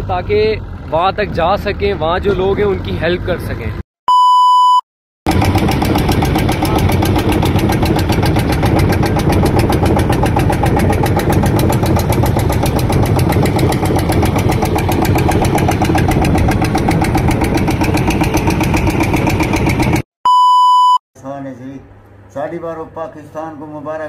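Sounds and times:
boat diesel engine running: 5.3 - 20.0.

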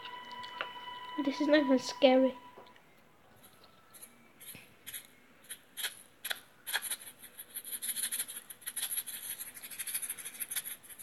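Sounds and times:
scratchy rustling: 6.7 - 11.0.

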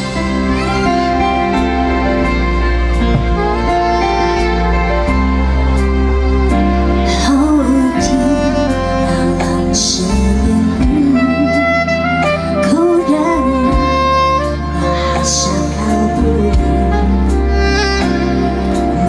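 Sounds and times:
backing chords: 0.0 - 19.0
bass guitar: 0.0 - 19.0
woman singing: 7.0 - 18.2.

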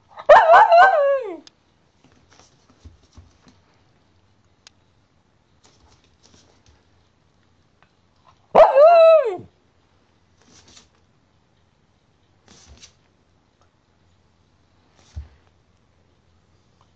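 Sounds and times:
dog barking: 0.2 - 1.4, 8.5 - 9.5.

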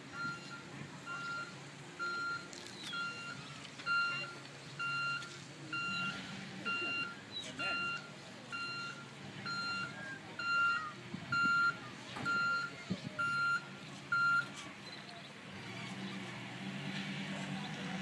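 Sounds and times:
van engine running: 0.0 - 18.0
reversing alarm beeping: 0.1 - 15.0.

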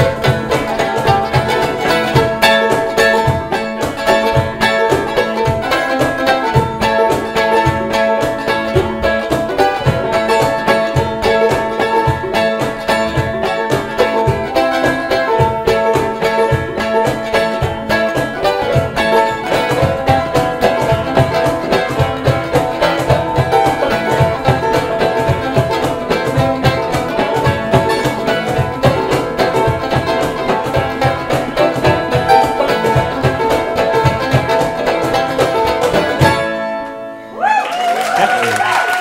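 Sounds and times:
banjo and guitar playing: 0.0 - 37.5
cajon beat: 0.0 - 39.0.

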